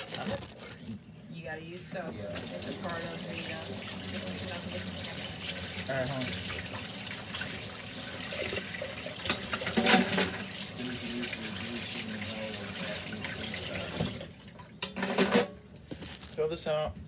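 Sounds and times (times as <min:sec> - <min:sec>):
tap running into sink: 0:08.3 - 0:12.3, 0:12.9 - 0:15.0
dishes clattering: 0:08.4 - 0:10.6, 0:14.8 - 0:15.6.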